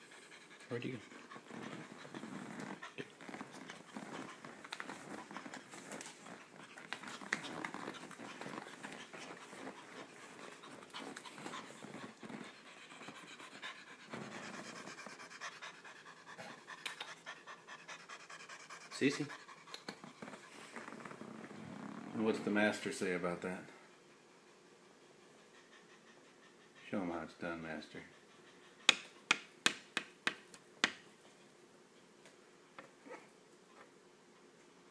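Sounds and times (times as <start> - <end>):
cat panting: 0.0 - 20.7, 23.9 - 27.2, 27.8 - 29.2
scratching and rustling on rug: 1.0 - 15.3, 20.0 - 22.9.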